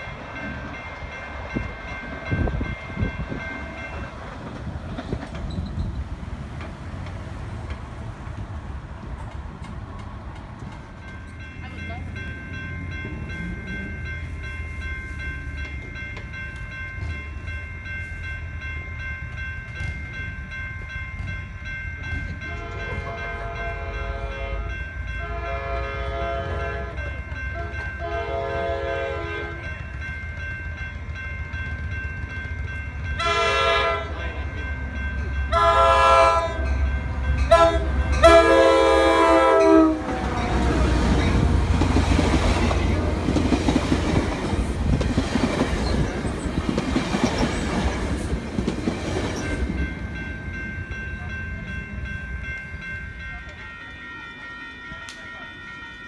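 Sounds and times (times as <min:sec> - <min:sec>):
train wheel and rail noise: 0:00.0 - 0:56.0
train horn blasts: 0:22.4 - 0:29.7, 0:33.2 - 0:34.4, 0:35.5 - 0:36.7, 0:37.4 - 0:41.8.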